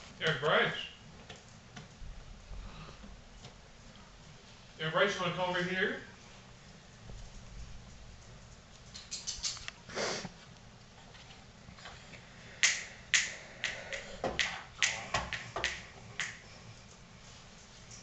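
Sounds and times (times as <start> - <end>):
hands slapping a television: 12.6 - 16.5.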